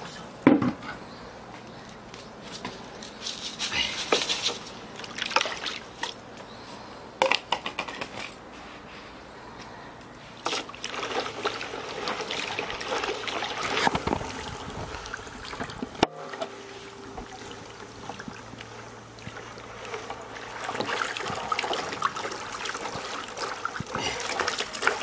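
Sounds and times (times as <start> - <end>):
water sloshing in plastic basin: 2.6 - 6.5, 10.3 - 25.0.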